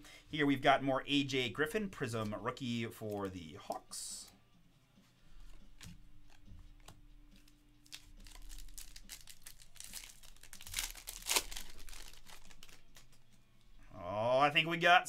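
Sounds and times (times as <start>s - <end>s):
foil wrapper crinkling and tearing: 7.8s - 13.2s.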